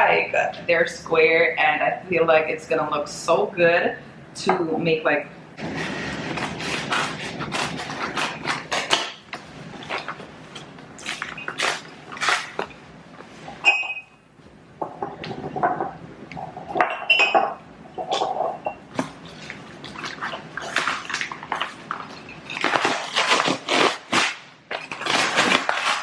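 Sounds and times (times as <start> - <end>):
porcelain dishes clinking: 16.7 - 18.8.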